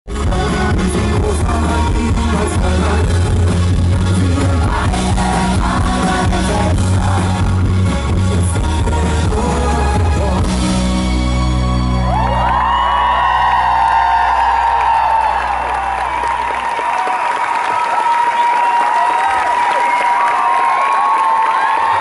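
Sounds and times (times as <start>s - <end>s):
man singing: 0.1s - 11.0s
rock band playing: 0.1s - 16.8s
heavy bass: 0.1s - 17.0s
audience whooping and cheering: 11.7s - 22.0s.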